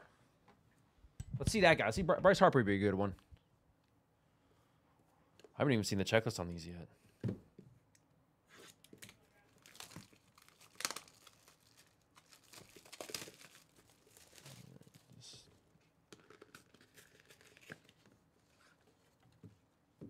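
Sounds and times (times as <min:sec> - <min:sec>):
plastic wrap crinkling: 0:08.7 - 0:15.4
plastic wrap ripping: 0:08.8 - 0:15.2.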